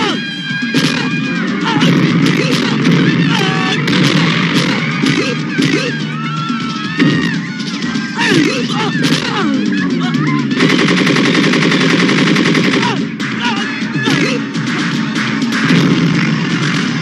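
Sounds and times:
gunfire: 0:00.8 - 0:05.9, 0:10.5 - 0:13.4, 0:14.0 - 0:17.0.

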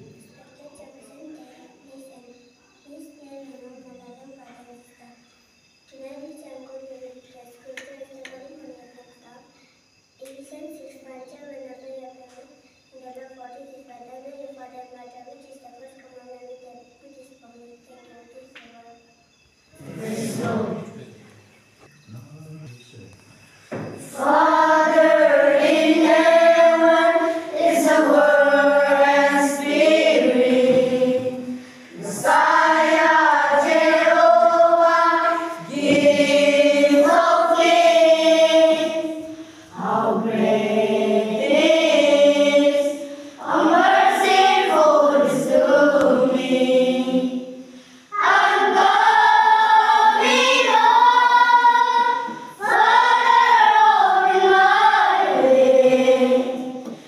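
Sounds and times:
children singing in unison: 0:19.7 - 0:21.2, 0:23.7 - 0:57.0.

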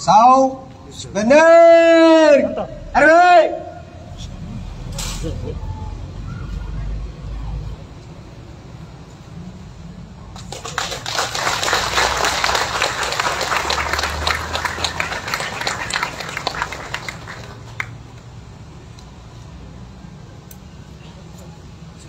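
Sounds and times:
crowd applauding: 0:10.3 - 0:18.2.

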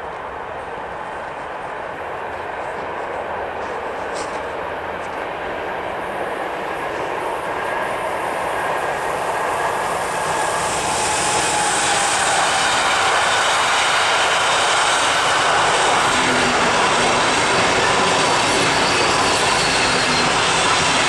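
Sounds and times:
train wheels rumbling on rails: 0:00.0 - 0:21.0
faint wheel squeal: 0:18.0 - 0:20.9.

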